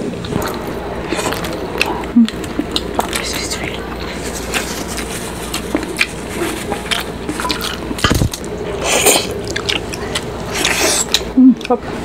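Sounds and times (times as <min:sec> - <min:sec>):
wet chewing and lip smacks: 0:09.4 - 0:11.8.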